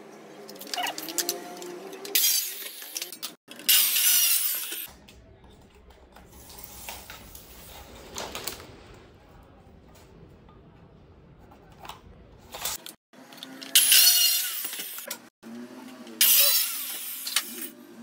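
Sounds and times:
power cutter cutting: 0:00.6 - 0:04.9, 0:13.2 - 0:17.8.

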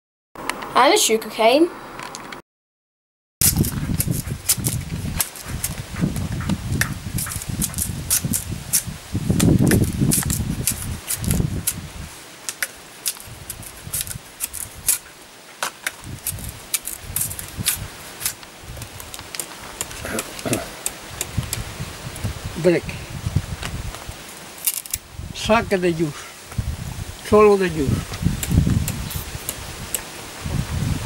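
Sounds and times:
machete cutting sugar cane: 0:03.4 - 0:05.8, 0:06.8 - 0:11.8, 0:12.4 - 0:21.6, 0:24.6 - 0:25.0, 0:28.3 - 0:30.1.

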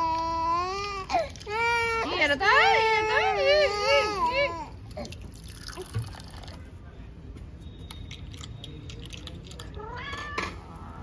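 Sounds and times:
child crying: 0:00.0 - 0:04.7.

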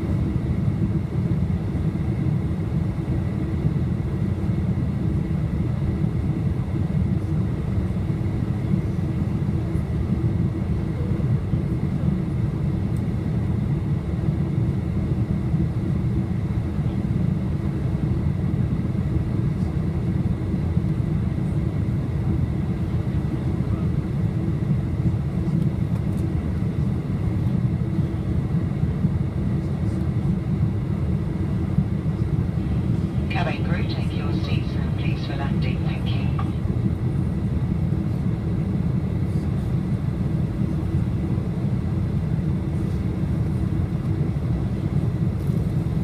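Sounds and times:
airliner engine rumble: 0:00.0 - 0:46.0
faint steady hum: 0:29.9 - 0:46.0.

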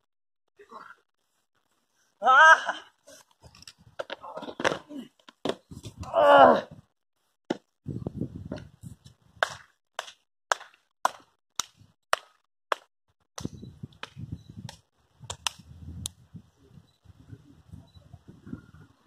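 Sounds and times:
wind rumble on microphone: 0:05.7 - 0:06.9, 0:07.8 - 0:09.4, 0:13.4 - 0:19.0
hand claps: 0:09.4 - 0:12.9.

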